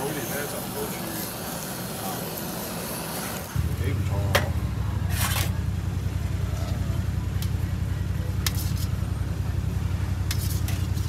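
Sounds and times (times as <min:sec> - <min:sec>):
blowtorch burning: 0:00.0 - 0:11.0.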